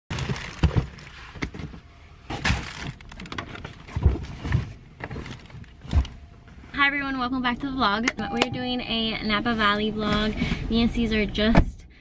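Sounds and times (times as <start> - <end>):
bags thumping and knocking: 0.1 - 1.7.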